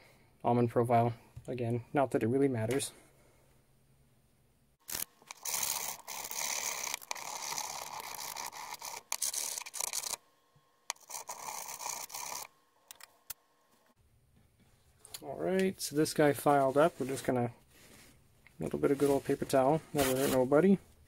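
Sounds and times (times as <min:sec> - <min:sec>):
hand file scraping metal: 0:04.9 - 0:10.2, 0:10.9 - 0:12.5.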